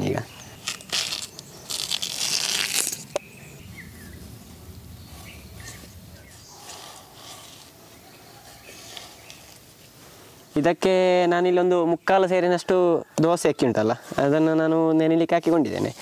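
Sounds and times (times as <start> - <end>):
insect chirps: 0.0 - 10.6.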